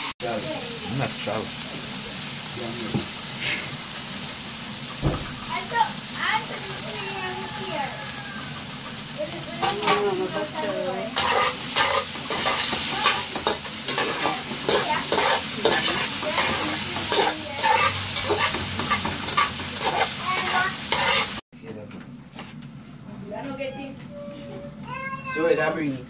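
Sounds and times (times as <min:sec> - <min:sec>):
vegetables sizzling: 0:00.0 - 0:21.4
spatula scraping metal pot: 0:11.2 - 0:21.4.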